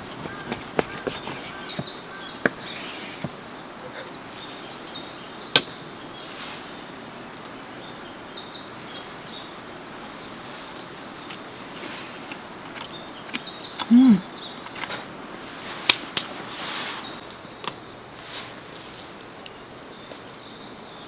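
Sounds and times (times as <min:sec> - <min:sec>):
crusty bread crackling: 0:00.0 - 0:03.4
outdoor background hiss: 0:00.0 - 0:21.0.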